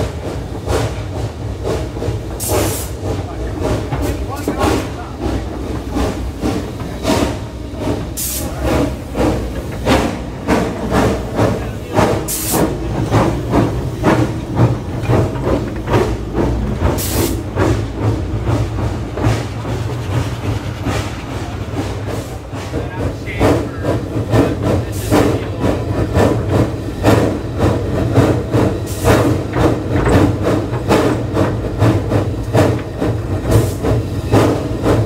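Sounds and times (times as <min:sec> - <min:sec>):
steam locomotive chuffing: 0:00.0 - 0:35.0
sharp hisses of steam: 0:02.4 - 0:03.0, 0:06.0 - 0:09.5, 0:11.0 - 0:12.9, 0:16.9 - 0:17.5.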